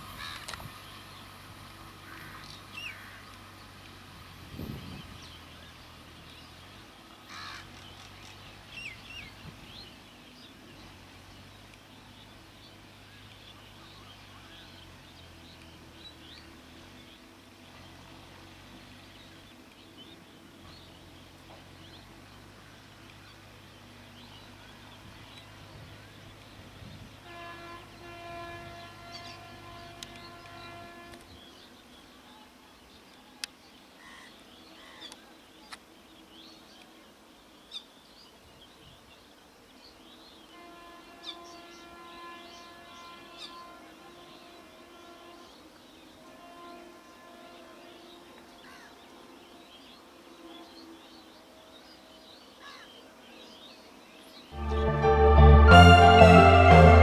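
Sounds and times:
birds chirping: 4.6 - 57.0
train horn: 27.1 - 31.5, 40.5 - 50.8, 54.5 - 57.0.

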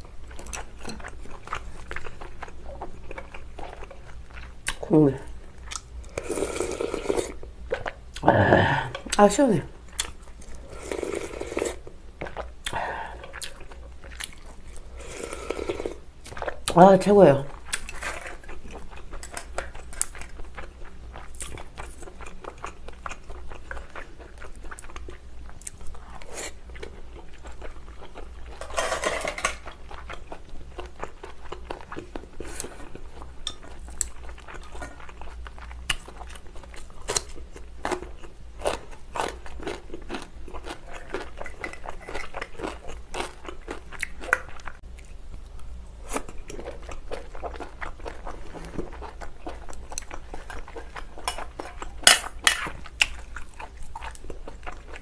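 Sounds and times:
chewing and mouth noises: 0.0 - 16.8, 17.5 - 28.7, 29.5 - 55.0.

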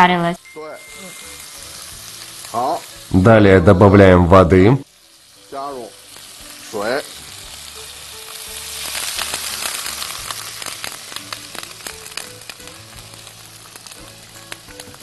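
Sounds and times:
water sizzling in a hot pan: 0.0 - 15.0
fat crackling and spitting: 6.1 - 15.0.

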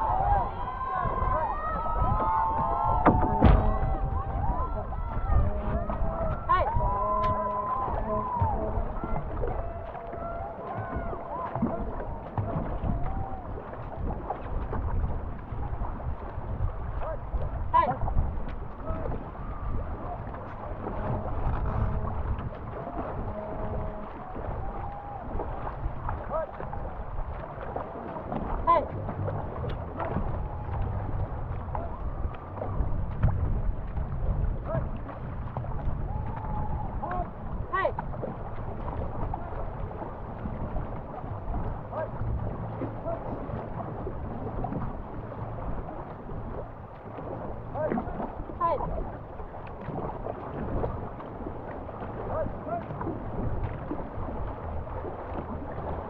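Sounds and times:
paddles stroking through water: 0.0 - 56.0
water running along hull: 0.0 - 56.0
wind buffeting microphone: 0.0 - 56.0.

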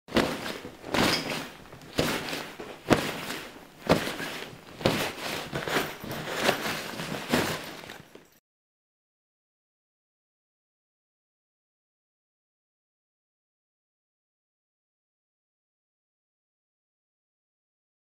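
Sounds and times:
clothes rustling into nylon backpack: 0.1 - 8.4.

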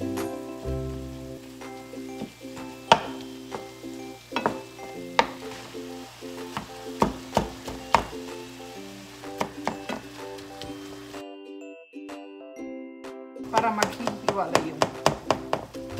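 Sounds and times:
meat and onions sizzling: 0.0 - 11.3, 13.4 - 15.9
light background music: 0.0 - 15.9.

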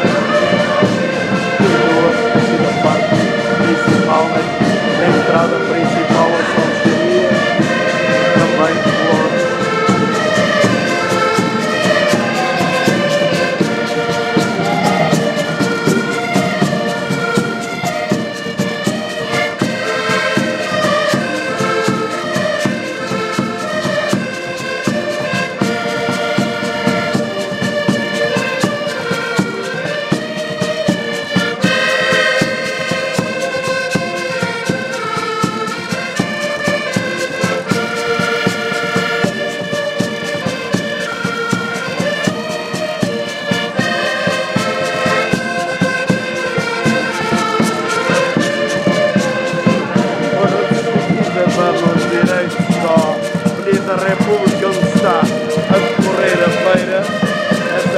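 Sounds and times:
button accordions playing folk tune: 0.0 - 57.9
bass drum beat: 0.1 - 30.2.

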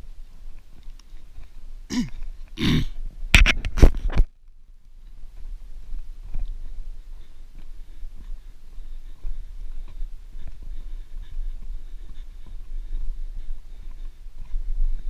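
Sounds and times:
man clearing his throat: 1.9 - 3.0.

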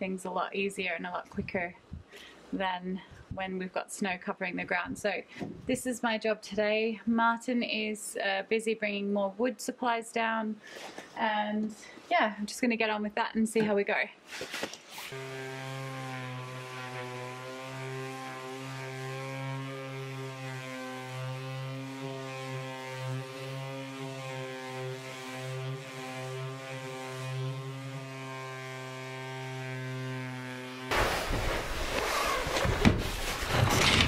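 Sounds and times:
orbital sander humming: 15.1 - 31.2.

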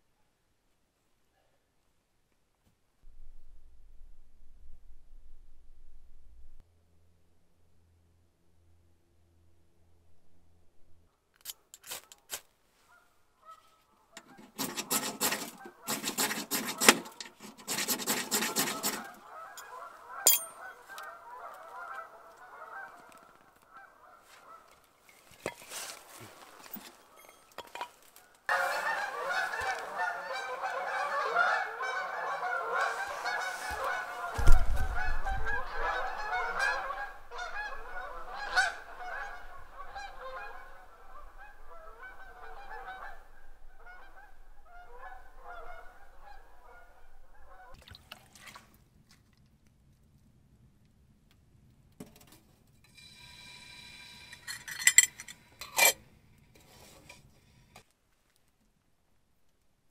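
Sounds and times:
geese honking: 12.9 - 17.5, 18.1 - 24.8, 28.5 - 47.8.

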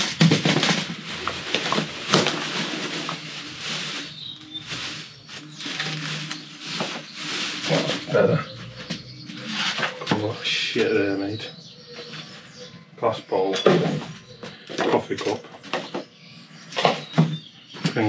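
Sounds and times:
litter crackling and knocking: 0.0 - 11.0
plastic bin bag rustling: 0.2 - 10.1.

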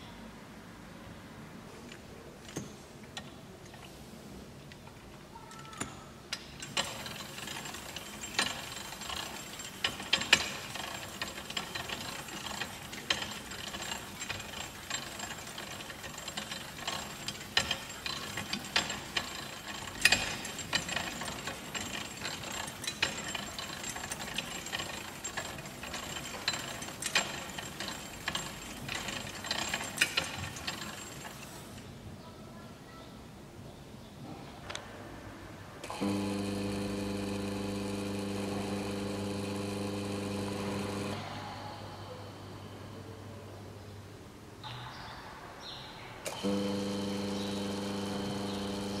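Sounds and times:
metal gears rattling and clicking: 6.4 - 31.9.

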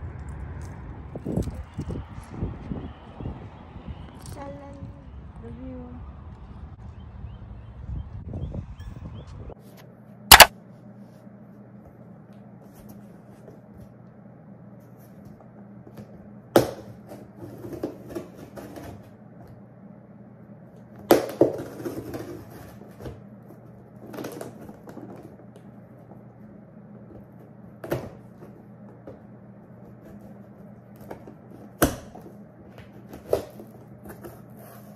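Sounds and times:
knife cutting and scraping tape: 10.3 - 10.5.

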